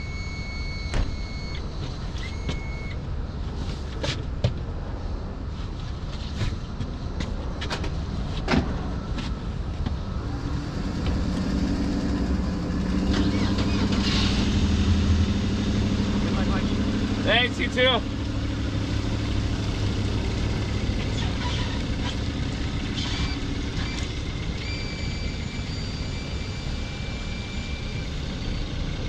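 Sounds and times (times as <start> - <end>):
short electronic beeps: 0.0 - 3.0, 23.0 - 28.7
vehicle engine running: 4.7 - 29.0
steady motor hum: 14.8 - 29.0.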